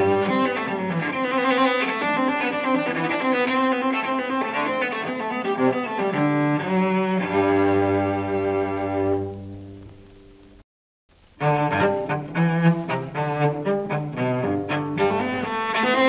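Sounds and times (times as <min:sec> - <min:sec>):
cello and bowed strings: 0:00.0 - 0:09.5, 0:11.4 - 0:16.0.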